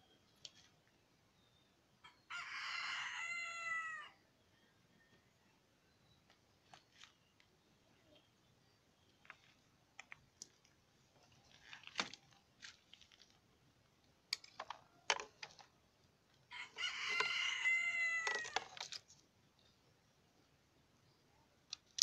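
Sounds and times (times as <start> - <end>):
rooster crowing: 2.0 - 4.2, 16.5 - 18.6.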